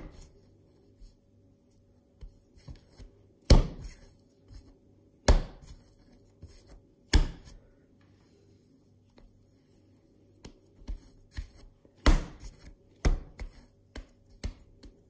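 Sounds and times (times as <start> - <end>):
dough being folded: 0.0 - 15.0
dough slapped onto worktop: 7.1 - 7.5.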